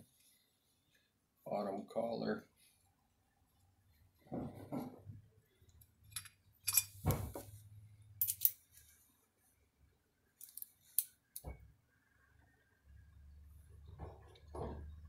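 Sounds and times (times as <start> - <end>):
small metal parts clinking: 6.0 - 7.0, 8.2 - 8.8, 10.4 - 11.4.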